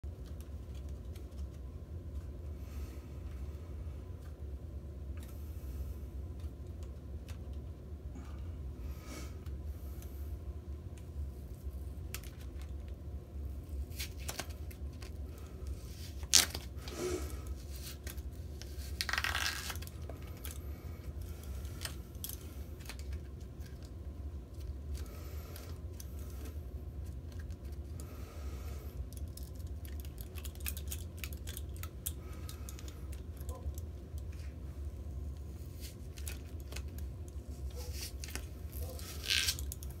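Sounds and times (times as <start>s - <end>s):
steady low hum: 0.0s - 40.0s
playing cards tearing: 13.8s - 20.6s, 37.7s - 40.0s
clicks and rustles: 29.0s - 34.6s.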